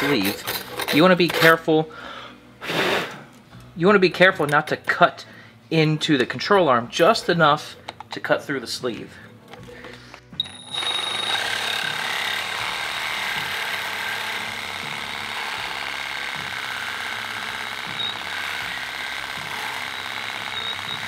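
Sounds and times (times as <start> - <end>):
reciprocating saw cutting metal: 10.8 - 21.0.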